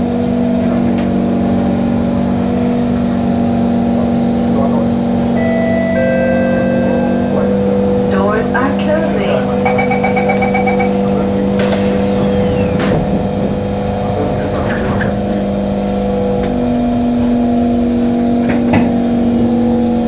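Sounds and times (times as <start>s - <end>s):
train electrical hum: 4.6s - 20.0s
rapid warning beeps: 8.6s - 13.0s.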